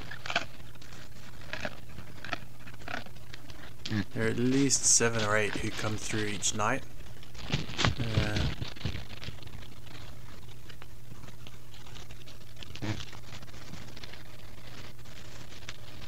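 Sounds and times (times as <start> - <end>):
faint clicks and crackles: 0.0 - 16.0
steady low hum: 0.0 - 16.0
person speaking: 3.9 - 6.9, 8.0 - 8.6.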